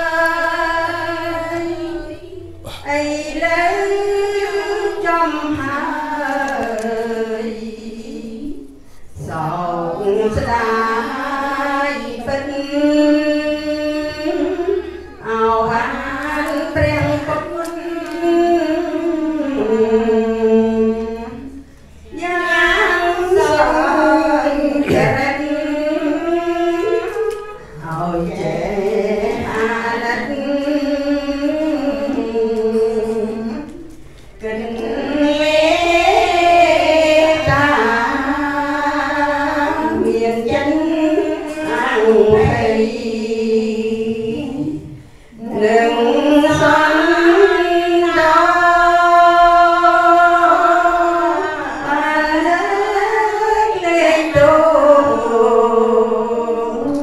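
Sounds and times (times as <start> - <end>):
person leading chant over microphone: 0.0 - 33.8
women chanting together: 0.0 - 57.0.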